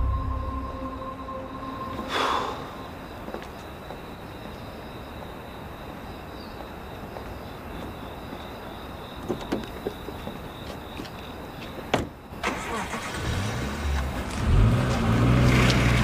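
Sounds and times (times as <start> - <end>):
rushing whoosh: 0.0 - 3.1
low droning music tone: 0.0 - 3.2
faint high whine: 0.0 - 3.9.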